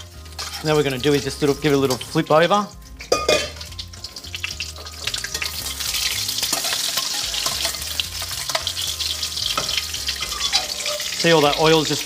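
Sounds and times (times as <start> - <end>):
omelette sizzling in oil: 0.0 - 12.0
metal spoon clicking on pan: 6.4 - 8.8.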